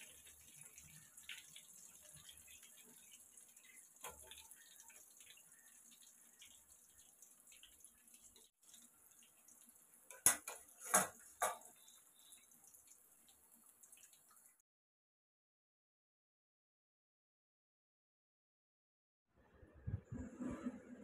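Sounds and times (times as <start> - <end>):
food deep-frying in oil: 0.0 - 14.6.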